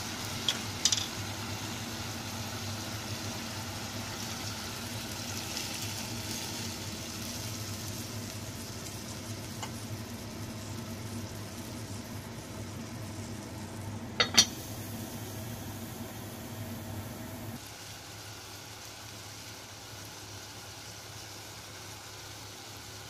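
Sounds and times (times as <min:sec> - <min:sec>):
steady low hum: 0:00.0 - 0:17.6
pot lid clacking: 0:14.2 - 0:14.5.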